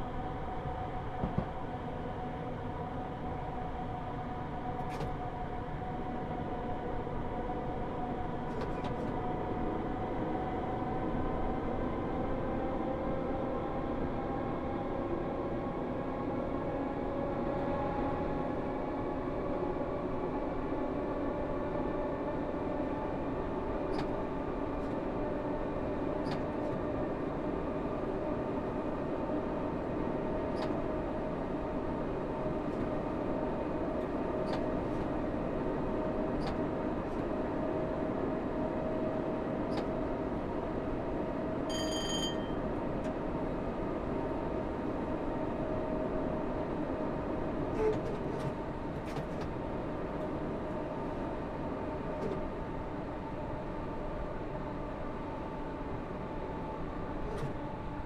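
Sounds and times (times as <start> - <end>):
electric train hum: 0.0 - 58.0
short high electronic beep: 41.7 - 42.6.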